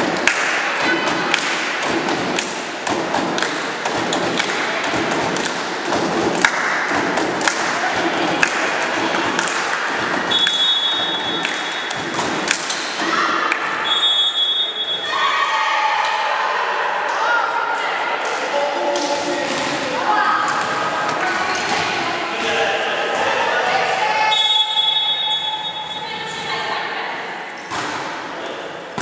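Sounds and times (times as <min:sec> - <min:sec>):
crowd voices: 0:00.0 - 0:29.0
volleyball thuds and taps: 0:01.3 - 0:10.6
referee whistle: 0:10.3 - 0:11.9, 0:13.8 - 0:15.2, 0:24.3 - 0:26.0.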